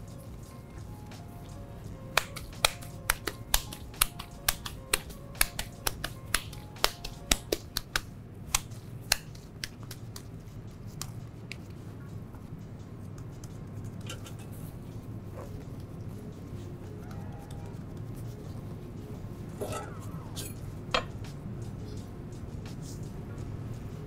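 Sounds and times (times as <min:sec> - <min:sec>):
wet slaps of patting meat: 0:02.1 - 0:10.4.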